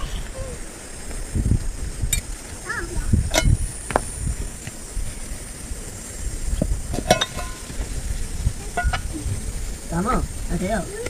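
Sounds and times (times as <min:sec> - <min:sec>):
low rumble and hiss: 0:00.0 - 0:11.0
metal cookware clinking: 0:03.3 - 0:03.6, 0:06.9 - 0:07.8, 0:08.7 - 0:09.1.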